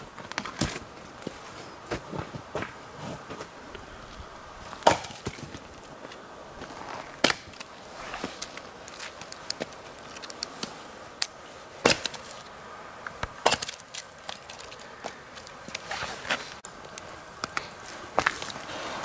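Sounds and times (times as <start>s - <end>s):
sticks cracking and knocking: 4.7s - 12.4s, 13.1s - 18.7s
blade chopping into wood: 4.8s - 5.4s, 7.2s - 7.6s, 11.8s - 12.2s, 13.4s - 13.8s.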